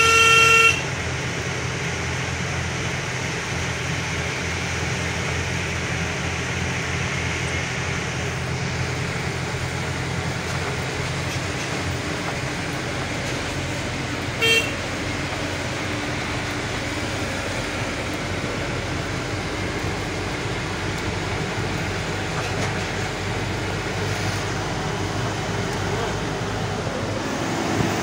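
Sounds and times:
vehicle horn tooting: 0:00.0 - 0:00.9, 0:14.4 - 0:14.9
diesel engine running: 0:00.0 - 0:28.0.

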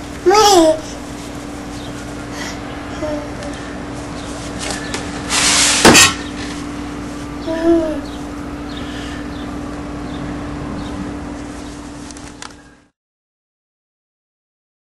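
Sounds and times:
steady low hum: 0:00.0 - 0:13.0
toddler vocalizing: 0:00.2 - 0:01.0, 0:07.4 - 0:08.1
loud rustling: 0:03.8 - 0:07.4.

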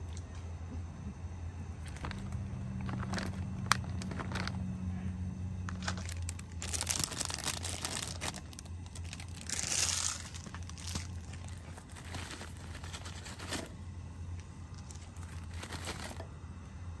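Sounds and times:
steady low hum: 0:00.0 - 0:17.0
rustling and crinkling: 0:01.8 - 0:04.6, 0:05.6 - 0:16.4.

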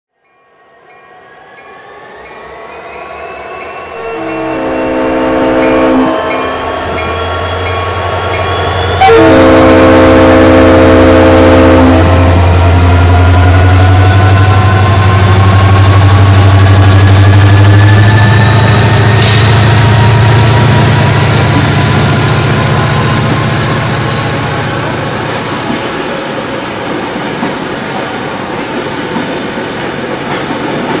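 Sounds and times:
diesel locomotive engines droning: 0:00.5 - 0:31.0
multi-note air horn: 0:04.0 - 0:07.0, 0:09.0 - 0:12.4.

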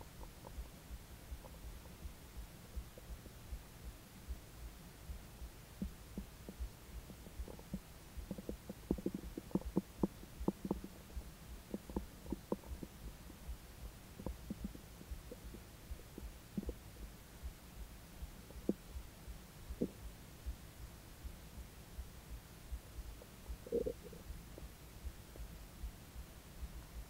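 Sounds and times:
low continual thumping: 0:00.0 - 0:27.0
stomach gurgling: 0:05.8 - 0:13.4, 0:14.2 - 0:16.8, 0:19.8 - 0:20.0, 0:23.1 - 0:24.7.

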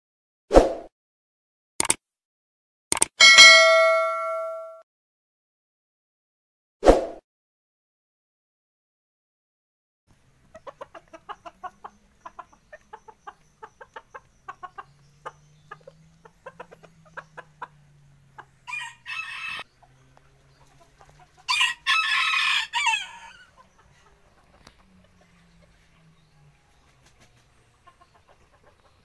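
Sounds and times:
chickens clucking: 0:10.1 - 0:29.0
rooster crowing: 0:18.6 - 0:19.7, 0:21.5 - 0:23.6.

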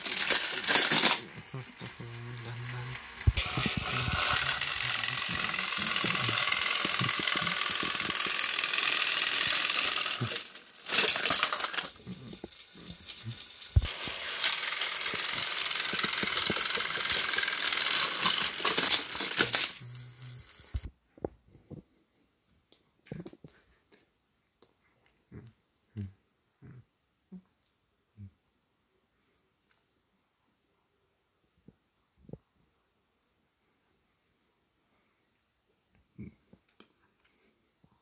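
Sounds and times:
plastic toy trains clattering: 0:00.0 - 0:19.8.

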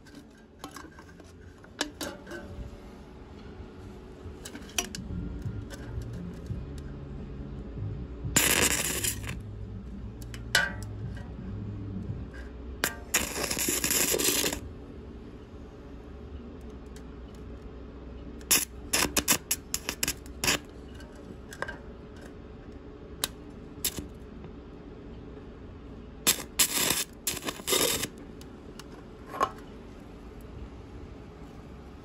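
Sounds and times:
carbon arc hissing and crackling: 0:08.4 - 0:09.4, 0:12.8 - 0:14.6, 0:18.4 - 0:20.7, 0:23.2 - 0:24.2, 0:26.3 - 0:28.2.

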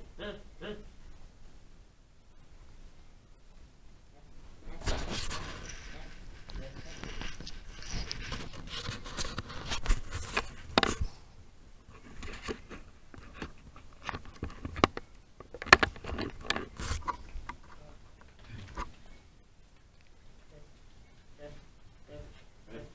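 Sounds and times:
scraping and knocking on camera: 0:04.8 - 0:11.2, 0:11.9 - 0:19.0.

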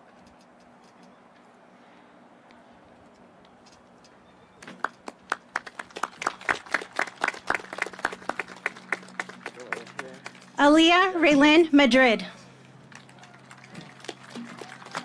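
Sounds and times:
people clapping: 0:04.6 - 0:10.8, 0:12.8 - 0:15.0.

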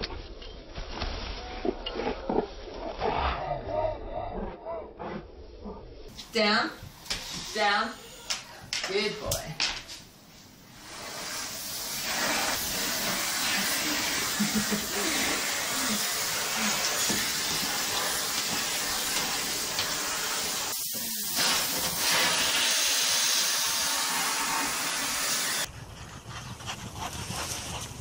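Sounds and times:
vacuum cleaner running: 0:10.8 - 0:25.7.

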